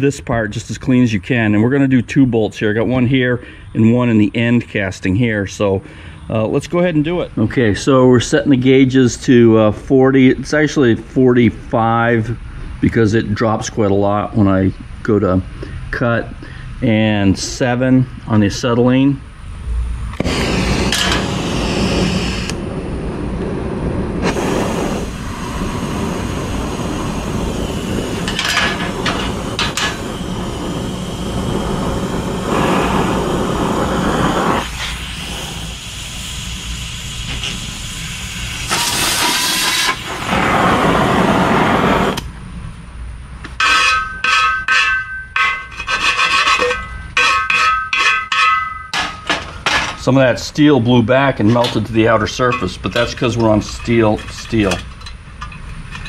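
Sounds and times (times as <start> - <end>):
cutting torch hissing: 20.0 - 42.3, 50.0 - 54.8.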